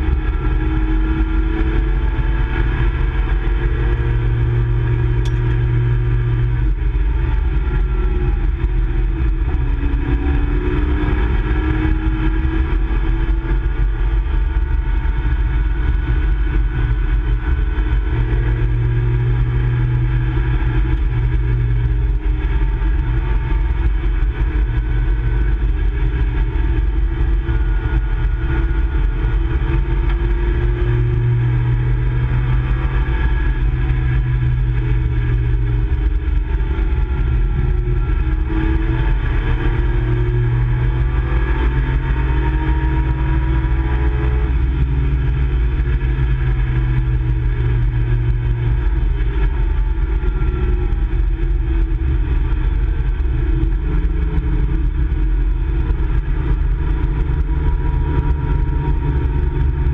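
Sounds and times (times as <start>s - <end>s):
car engine running hard: 0.0s - 59.9s.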